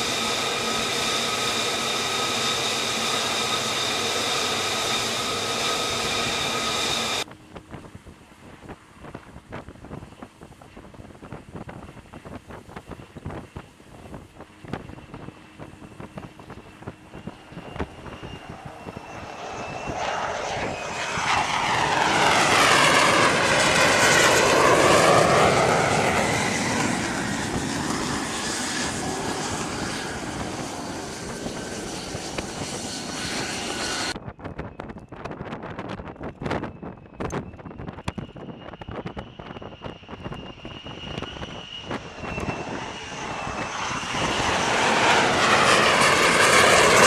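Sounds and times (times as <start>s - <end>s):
jet engine roar: 0.0s - 34.8s, 36.1s - 47.0s
wind buffeting microphone: 7.2s - 47.0s.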